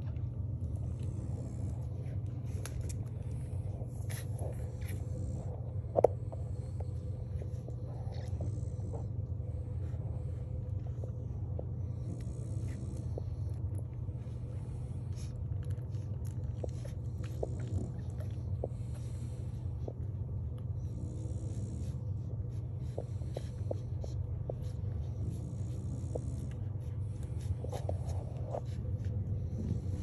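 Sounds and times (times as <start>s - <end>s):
puppies suckling clicks: 0.0s - 5.1s, 12.6s - 20.8s
steady low hum: 0.0s - 30.0s.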